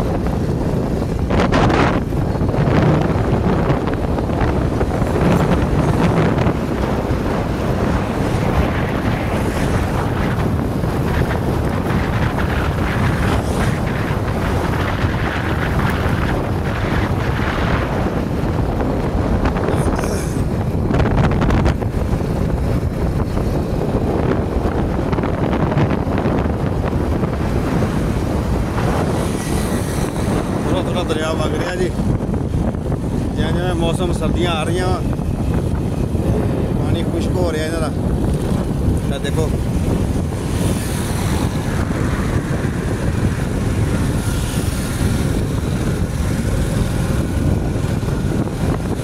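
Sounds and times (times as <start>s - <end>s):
vehicle rumbling: 0.0s - 49.0s
wind buffeting microphone: 0.0s - 49.0s.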